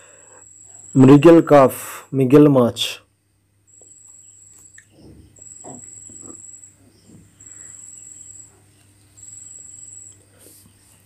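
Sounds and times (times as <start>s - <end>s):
insect trilling: 3.7s - 10.6s.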